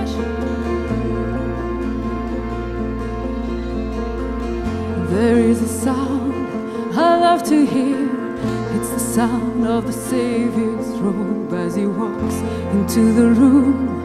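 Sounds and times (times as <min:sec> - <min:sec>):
sustained low accompaniment chords: 0:00.0 - 0:14.0
woman singing worship song: 0:05.0 - 0:14.0.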